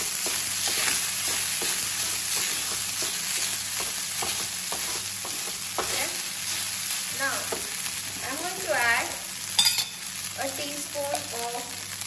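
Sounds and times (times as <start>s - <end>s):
spatula scraping and tapping pan: 0.0s - 6.6s, 7.4s - 7.8s
rice sizzling in hot oil: 0.0s - 12.0s.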